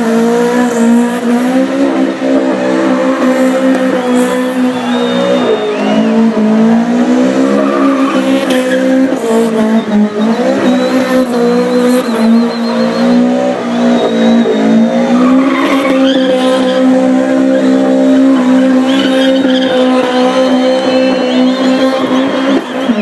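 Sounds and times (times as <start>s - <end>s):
truck engine revving high: 0.0s - 23.0s
tyres squealing on concrete: 2.6s - 23.0s.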